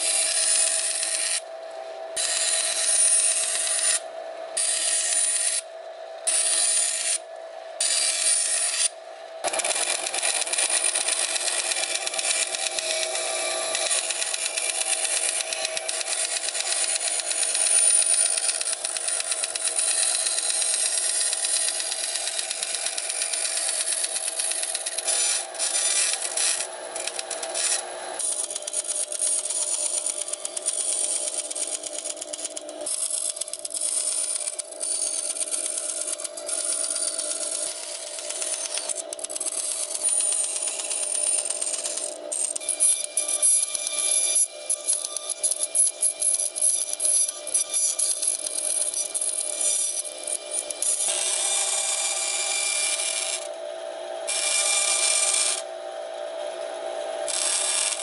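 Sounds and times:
band saw humming: 0.0s - 44.2s
band saw cutting: 0.0s - 58.0s.

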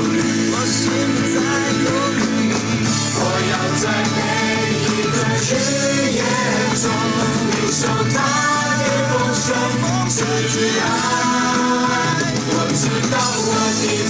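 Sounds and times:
instrumental accompaniment: 0.0s - 14.0s
person singing: 0.0s - 14.0s.

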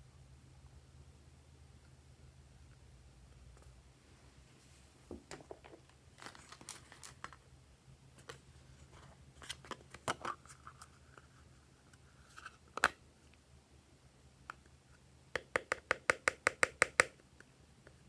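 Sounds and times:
plastic tub clicks and crinkles: 5.2s - 7.4s.

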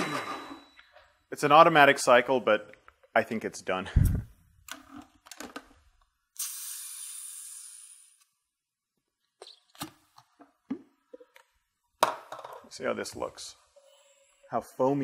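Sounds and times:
air hissing into jug: 6.3s - 8.3s.

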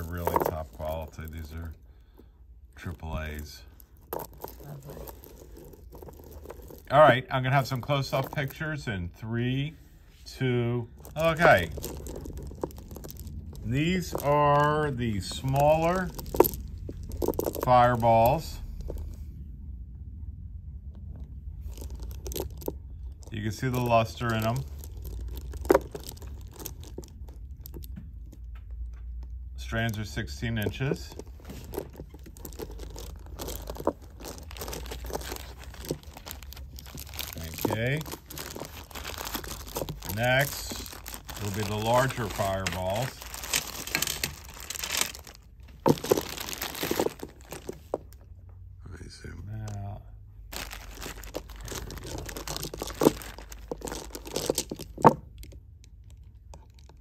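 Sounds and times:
plastic bag crinkling: 0.0s - 2.2s, 2.8s - 8.6s, 10.9s - 19.3s, 21.6s - 28.6s, 29.7s - 48.2s, 50.4s - 57.0s
pearls clicking and rattling: 0.0s - 8.8s, 10.9s - 19.3s, 21.2s - 48.3s, 50.4s - 57.0s.

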